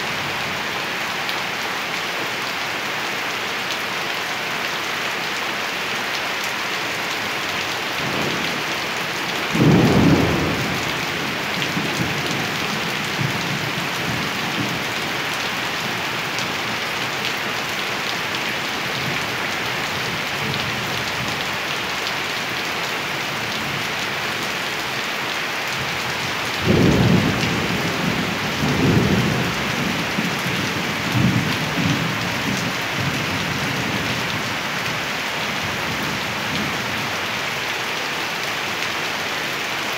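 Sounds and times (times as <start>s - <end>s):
steady rain falling: 0.0s - 39.9s
rumbling roll of thunder: 9.5s - 14.8s
thunder clap: 9.6s - 11.4s.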